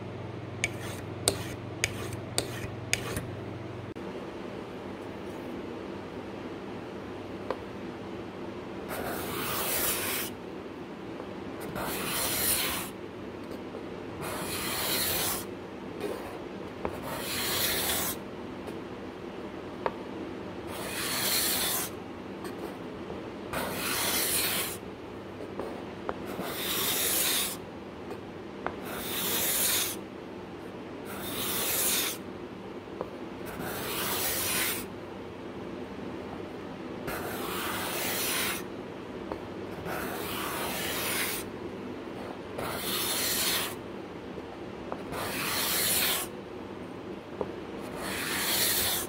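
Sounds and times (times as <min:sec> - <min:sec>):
cabinet scraper rasping on wood: 0:00.6 - 0:03.3, 0:39.9 - 0:41.4, 0:42.6 - 0:43.7, 0:45.1 - 0:46.3, 0:47.9 - 0:49.0.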